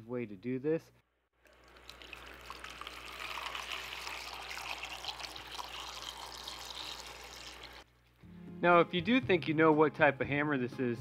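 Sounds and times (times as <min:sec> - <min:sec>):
liquid pouring into plastic tub: 0:01.4 - 0:07.8
liquid splashing on metal: 0:01.5 - 0:07.8.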